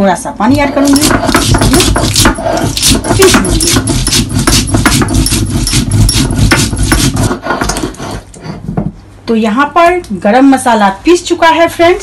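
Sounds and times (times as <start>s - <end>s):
stone grating on stone: 0.8s - 8.3s.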